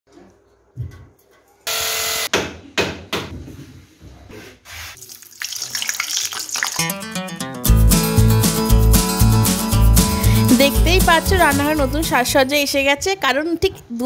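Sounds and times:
hot oil sizzling: 5.0s - 7.1s.

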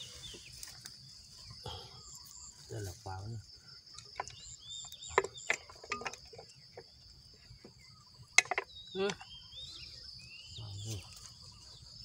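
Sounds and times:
insects trilling: 0.0s - 12.0s
wooden trap clicks and knocks: 8.3s - 9.4s.

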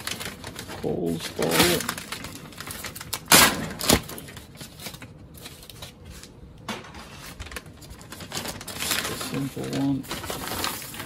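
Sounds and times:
plastic bag crinkling: 0.0s - 6.4s, 7.1s - 11.0s.

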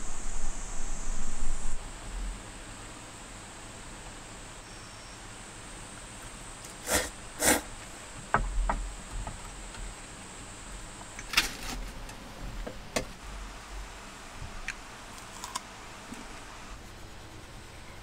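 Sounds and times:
low rumble: 0.0s - 2.5s
faint steady hiss: 0.0s - 18.0s.

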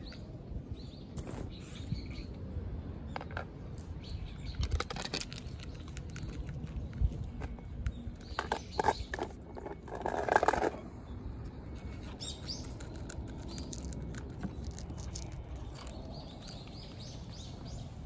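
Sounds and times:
cats crunching dry kibble: 4.4s - 17.6s.

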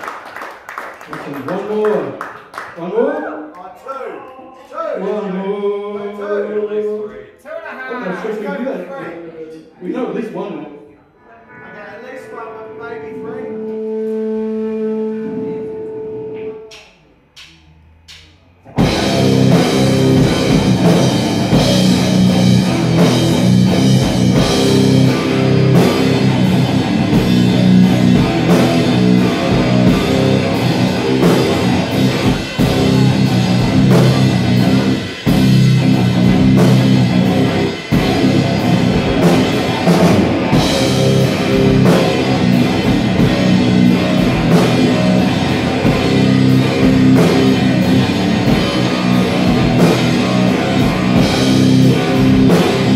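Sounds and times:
distorted electric guitar riff: 11.2s - 52.9s
drum kit: 16.4s - 52.9s.

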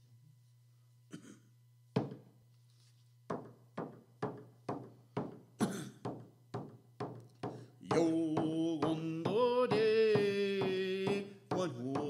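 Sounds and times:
frame drum struck with beater: 3.3s - 12.0s.

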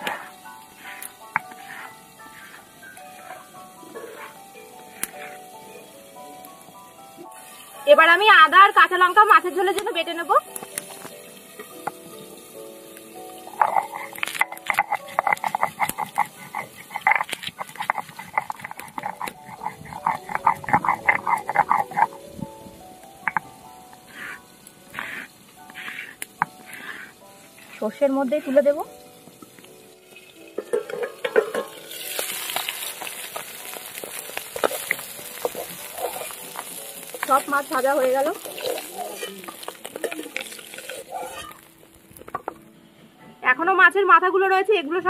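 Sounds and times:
fish frying in hot oil: 0.0s - 42.6s
metal spatula scraping pan: 13.5s - 22.2s, 30.6s - 41.7s
stone roller rasping on grinding stone: 13.6s - 22.2s, 34.6s - 37.4s, 40.7s - 41.6s.

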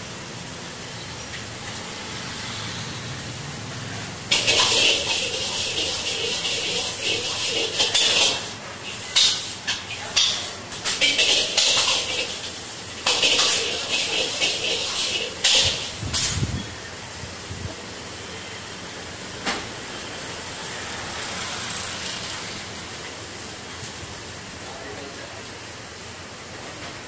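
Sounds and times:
food sizzling in a wok: 0.0s - 27.0s
metal ladle scraping wok: 4.2s - 16.7s.

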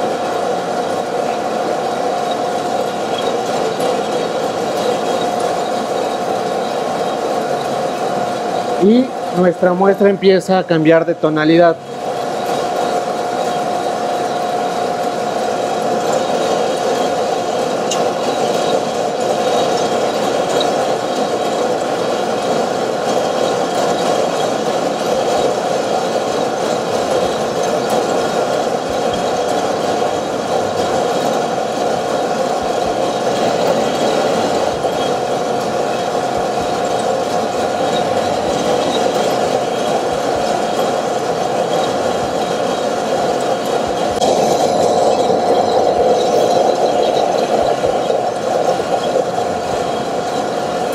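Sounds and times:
coffee roaster drum whirring: 0.0s - 50.9s
coffee beans tumbling: 32.5s - 50.9s.

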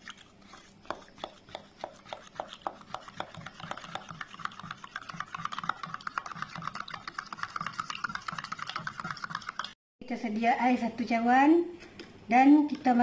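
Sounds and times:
metal spoon stirring in a plastic cup: 0.0s - 9.8s.

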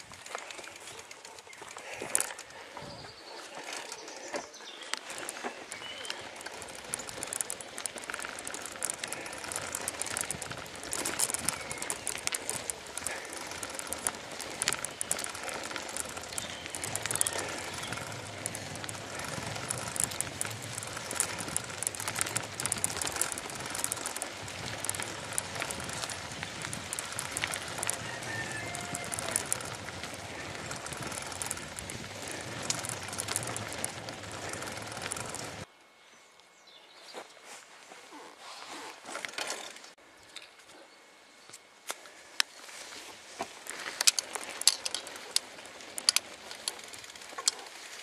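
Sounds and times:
bicycle rattles and clicks: 0.0s - 35.7s, 39.0s - 40.5s, 42.9s - 48.0s
bicycle tyre noise: 0.0s - 35.7s, 42.7s - 48.0s
faint bird chirps: 2.4s - 6.4s.

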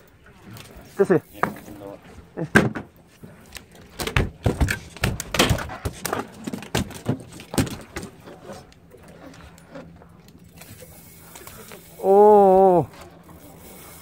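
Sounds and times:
fish thudding on boat deck: 3.9s - 8.2s.

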